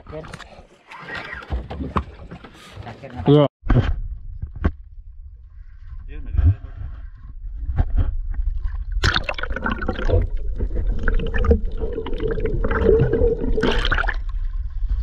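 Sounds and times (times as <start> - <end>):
water splashing and gurgling: 8.0 - 15.0.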